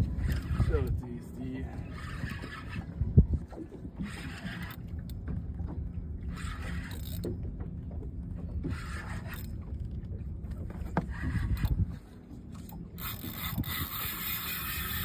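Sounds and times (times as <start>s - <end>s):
low steady rumble: 0.0s - 15.0s
fishing reel whirring: 1.9s - 2.9s, 4.0s - 4.9s, 6.3s - 7.3s, 12.6s - 15.0s.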